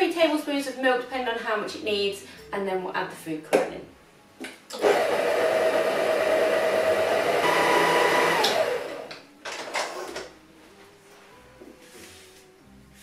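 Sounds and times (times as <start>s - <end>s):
stand mixer motor whining: 4.8s - 9.1s.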